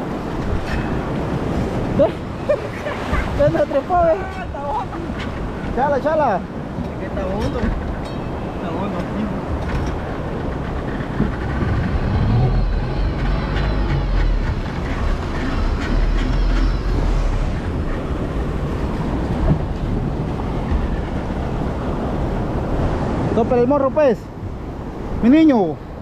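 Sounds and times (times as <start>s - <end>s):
surf rumbling around boat: 0.0s - 26.0s
wind buffeting microphone: 0.0s - 26.0s
outboard motor running: 9.4s - 19.7s.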